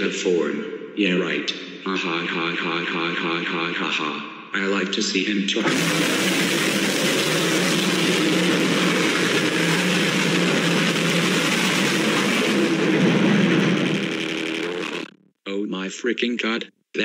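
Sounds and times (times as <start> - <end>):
rough low drone: 5.6 - 15.2
static-like noise: 5.6 - 15.2.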